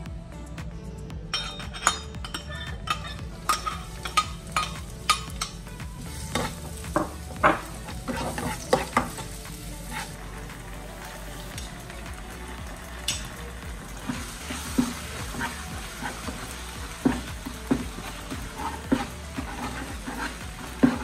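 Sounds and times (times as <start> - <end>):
spatula clicking and scraping: 2.4 - 10.2, 14.0 - 21.0
garlic sizzling in hot oil: 2.9 - 21.0.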